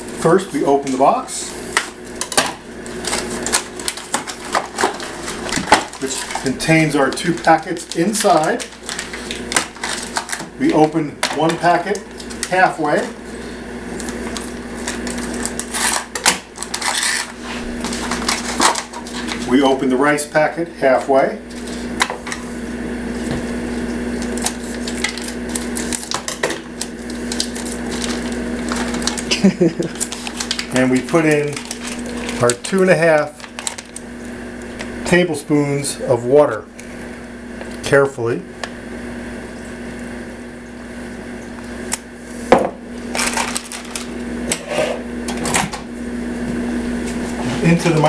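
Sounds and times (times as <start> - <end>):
steady low hum: 0.0 - 48.0
plastic pouch crinkling: 2.9 - 10.6, 24.2 - 34.9, 43.0 - 44.2.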